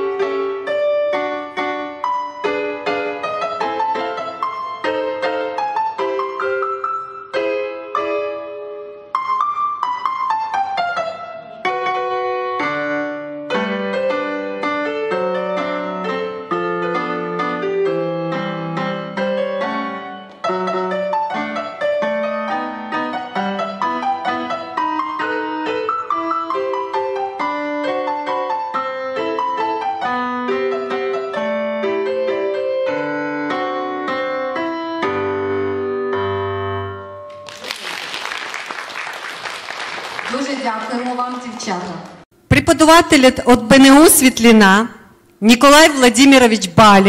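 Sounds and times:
solo piano waltz: 0:00.0 - 0:37.3
audience applauding: 0:37.3 - 0:42.2.

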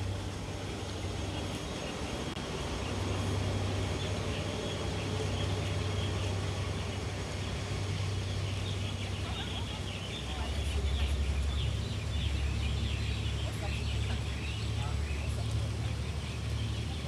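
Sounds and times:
boat engine idling hum: 0:00.0 - 0:17.0
constant wash of noise: 0:00.0 - 0:17.0.

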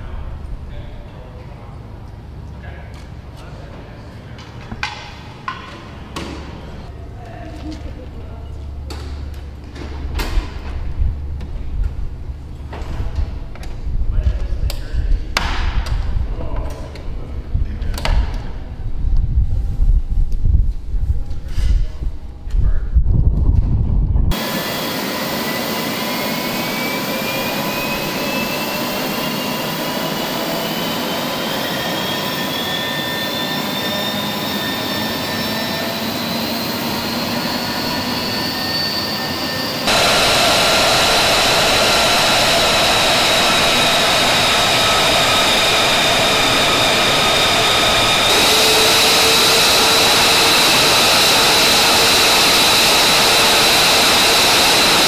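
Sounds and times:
jet engine whine and roar: 0:23.2 - 0:55.0.

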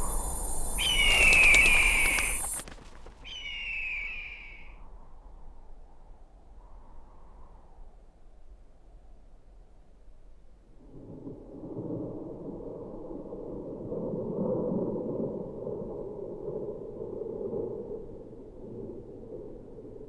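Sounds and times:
low rumble of thunder: 0:10.8 - 0:20.0.

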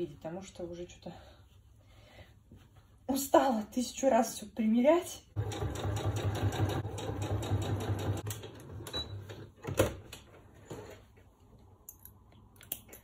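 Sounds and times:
sewing machine stitching: 0:05.4 - 0:09.2.

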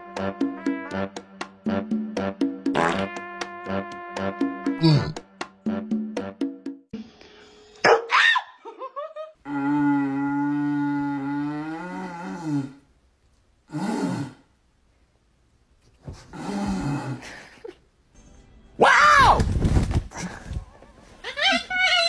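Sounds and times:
man howling through a cardboard tube: 0:09.4 - 0:12.8.

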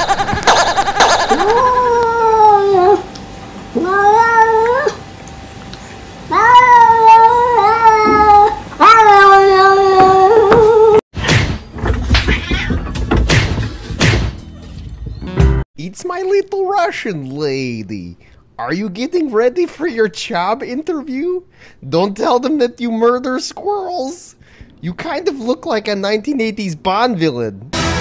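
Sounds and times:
cat yowling: 0:00.4 - 0:03.1, 0:03.7 - 0:05.0, 0:06.3 - 0:11.0.

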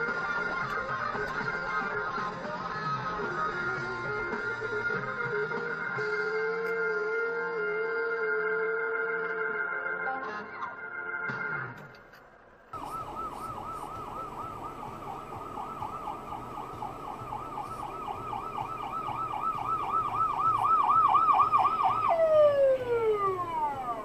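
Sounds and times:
emergency siren yelping: 0:12.7 - 0:24.0.

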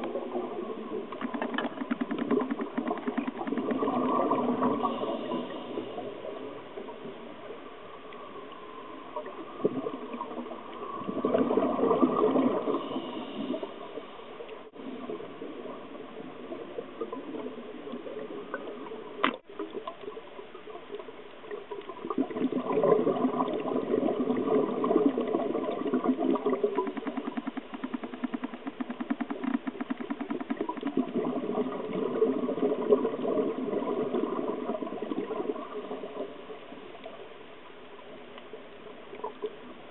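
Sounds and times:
regulator bubbles underwater: 0:00.0 - 0:39.9
short clicks: 0:26.8 - 0:31.0.

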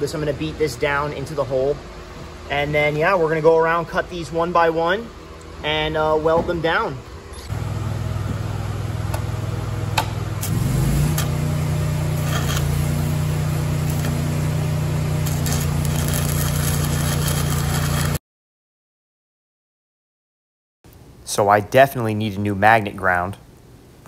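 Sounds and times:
welding arc crackling: 0:07.5 - 0:18.2
welding machine engine running: 0:07.5 - 0:18.2
welding electrode clicking and scratching: 0:10.4 - 0:11.4, 0:12.1 - 0:14.3, 0:15.1 - 0:18.2.

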